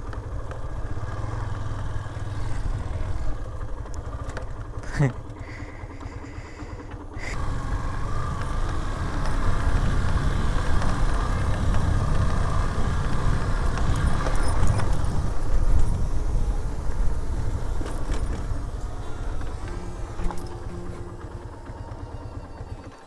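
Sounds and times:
motorcycle engine: 0.0 - 23.0
wind rumble on microphone: 9.4 - 18.9.

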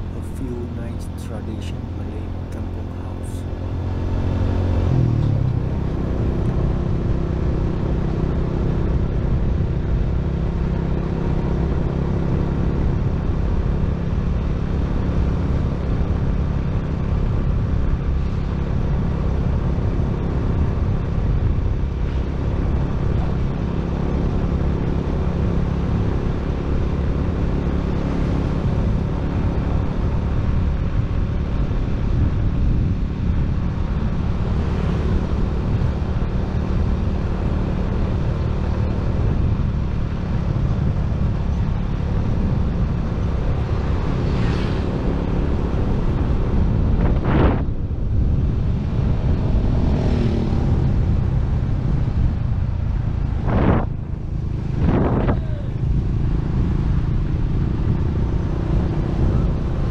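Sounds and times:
vehicle engine and tyres rumbling: 0.0 - 59.9
wind noise on microphone: 28.3 - 59.9.

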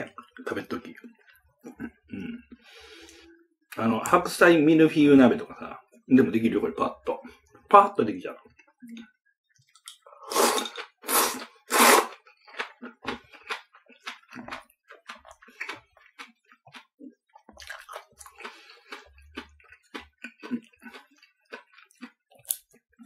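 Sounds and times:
man chewing wetly: 0.2 - 3.4, 8.4 - 23.0
noodles slurped loudly: 10.3 - 12.3.

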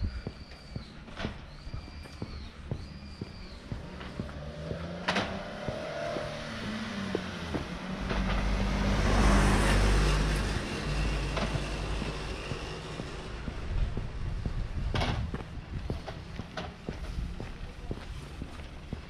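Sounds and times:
footsteps walking: 0.0 - 8.3, 10.3 - 19.0
car driving past: 3.6 - 14.3.

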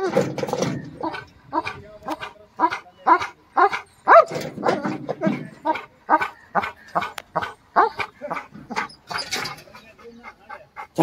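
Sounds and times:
dog barking: 1.0 - 5.0, 5.6 - 8.9.

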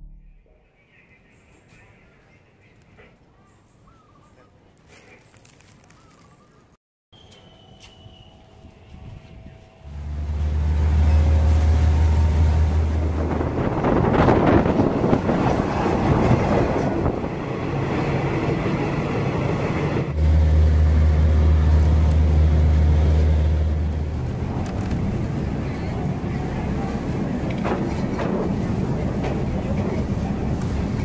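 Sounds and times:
vehicle engine deep rumble: 9.3 - 16.8, 20.1 - 31.0.

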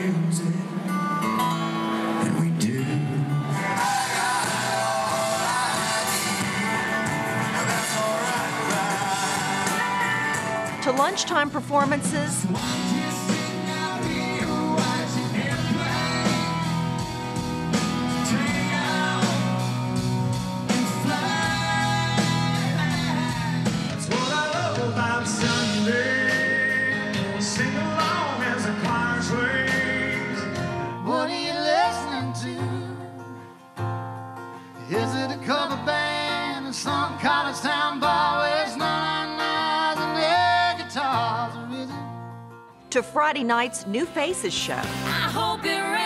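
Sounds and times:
live country band with man singing: 0.0 - 42.6
guitar and singing: 0.0 - 42.8, 44.8 - 46.0.

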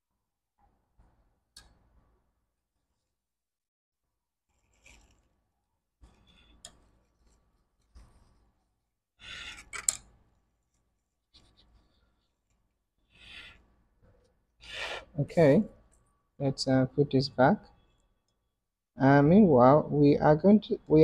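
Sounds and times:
small tools clicking and scraping: 4.5 - 5.3, 9.3 - 12.6.

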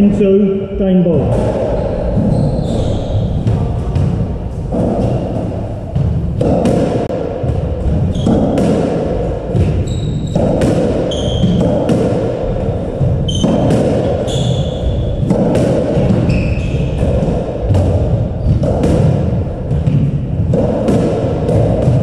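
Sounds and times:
shoes squeaking on wooden floor: 1.7 - 4.0, 9.6 - 11.8, 13.2 - 15.3, 16.0 - 17.2
squash ball cracking off rackets: 3.4 - 22.0.

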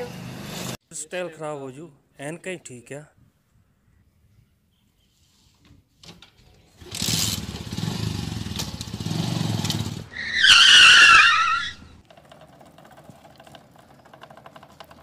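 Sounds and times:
motorcycle engine rumbling: 6.5 - 10.4, 11.4 - 15.0
tyre screech: 10.1 - 12.0.

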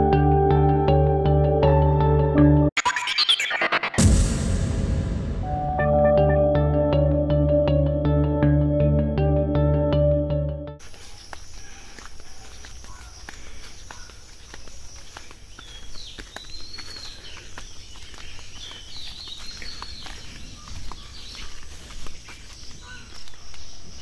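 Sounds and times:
birds chirping: 10.8 - 24.0
footsteps on grass and leaves: 10.8 - 24.0.

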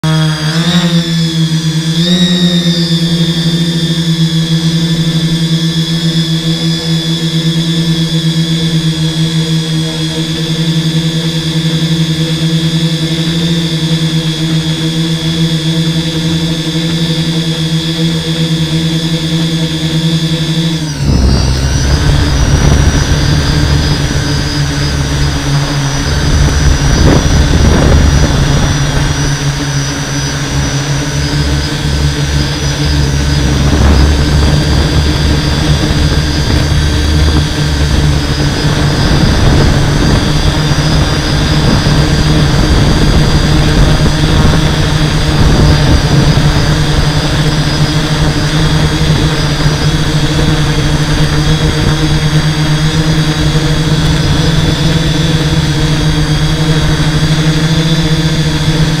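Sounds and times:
drone propellers whining: 0.0 - 59.0
low rumble: 20.9 - 46.7.

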